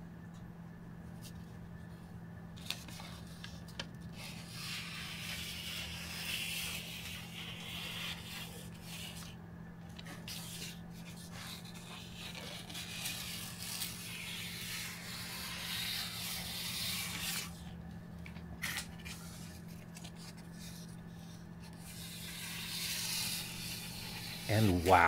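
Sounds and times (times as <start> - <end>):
steady low hum: 0.0 - 25.0
paper roller rubbing on plastic mat: 2.9 - 9.3, 10.0 - 17.7, 19.1 - 25.0.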